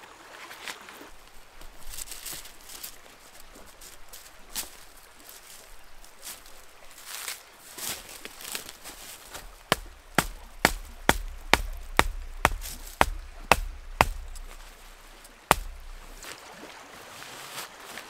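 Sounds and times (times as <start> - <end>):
hatchet knocking wooden stake: 9.3 - 16.2.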